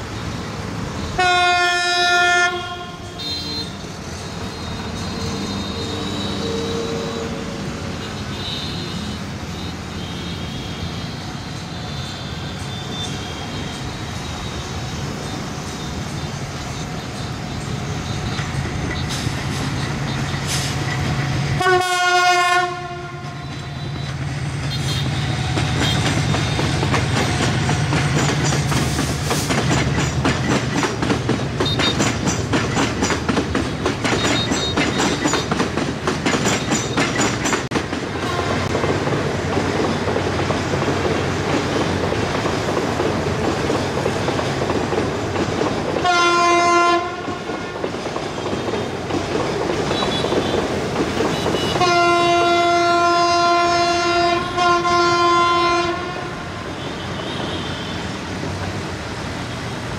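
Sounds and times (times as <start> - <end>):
train horn: 1.2 - 3.9, 4.5 - 9.2, 21.6 - 24.1, 38.2 - 38.8, 46.0 - 47.7, 49.9 - 50.7, 51.3 - 58.1
wheels clattering over rail joints: 25.4 - 46.1.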